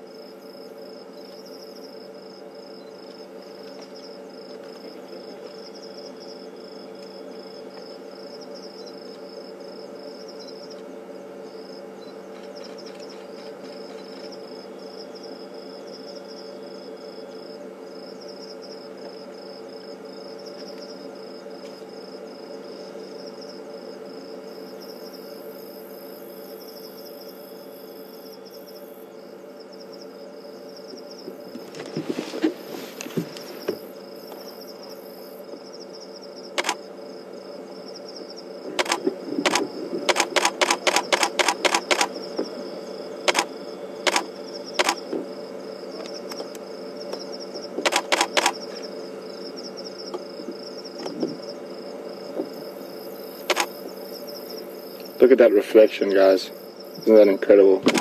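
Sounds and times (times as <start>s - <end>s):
night insects chorus: 0.0s - 58.0s
camera shutter clicks: 36.6s - 36.8s, 38.8s - 42.2s, 43.3s - 43.5s, 44.1s - 45.0s, 47.8s - 48.6s, 53.5s - 53.8s.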